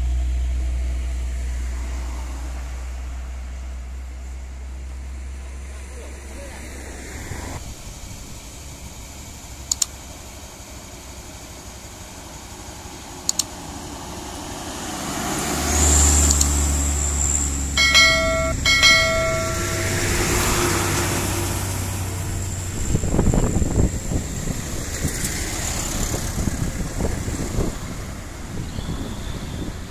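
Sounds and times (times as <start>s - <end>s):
truck diesel engine labouring: 0.0s - 29.9s
sharp double clicks: 9.7s - 10.0s, 13.2s - 13.6s, 16.2s - 16.6s.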